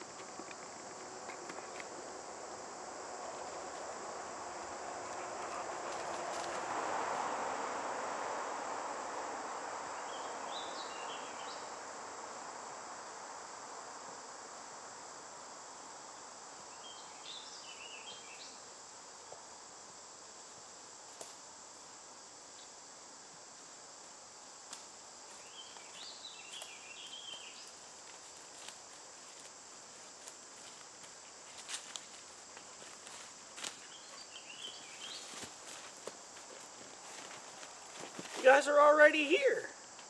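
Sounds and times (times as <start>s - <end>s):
high insect hum: 0.0s - 40.0s
bird singing: 16.8s - 18.6s, 25.4s - 27.7s, 33.8s - 35.3s
footsteps crunching dry leaves: 27.6s - 34.1s, 34.8s - 38.6s.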